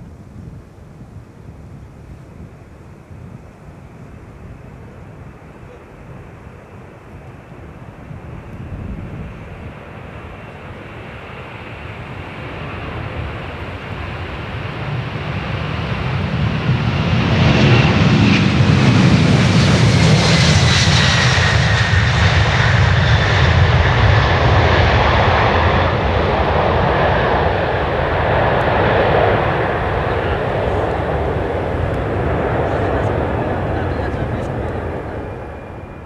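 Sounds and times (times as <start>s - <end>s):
jet engine noise: 0.0s - 36.0s
low jet rumble: 0.0s - 36.0s.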